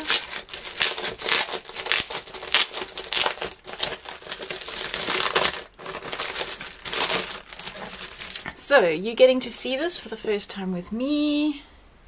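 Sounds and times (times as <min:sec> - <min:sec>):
plastic wrapping crinkling: 0:00.0 - 0:08.6.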